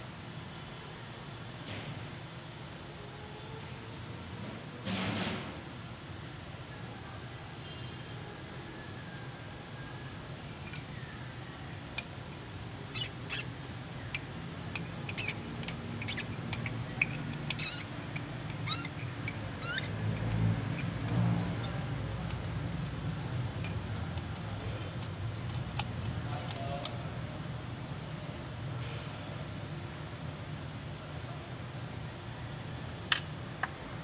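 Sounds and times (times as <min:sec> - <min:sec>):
small metal clicks and clinks: 0:10.4 - 0:12.2, 0:14.0 - 0:27.0.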